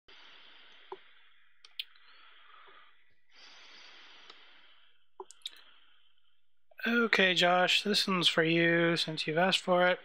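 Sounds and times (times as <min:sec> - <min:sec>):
faint steady hiss: 0:00.1 - 0:10.0
computer mouse clicks: 0:05.2 - 0:05.6.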